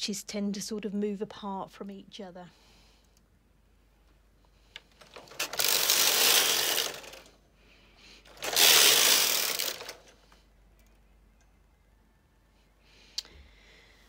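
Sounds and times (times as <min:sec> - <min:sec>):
knitting machine carriage clatter: 0:04.9 - 0:07.3, 0:08.2 - 0:10.2.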